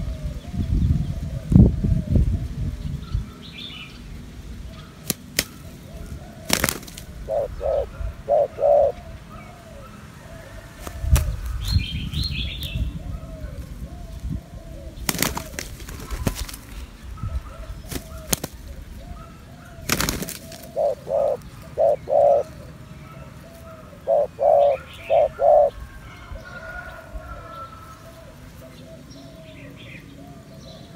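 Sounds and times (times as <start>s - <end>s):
low dove coos: 0.0s - 3.4s, 4.6s - 30.9s
dove wings flapping: 6.4s - 7.4s, 10.8s - 11.6s, 15.0s - 16.8s, 17.9s - 18.7s, 19.8s - 21.4s.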